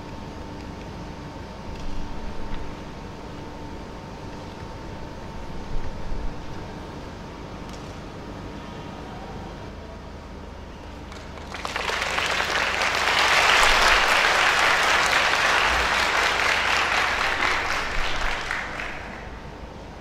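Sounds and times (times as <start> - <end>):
audience applauding: 11.1 - 19.5.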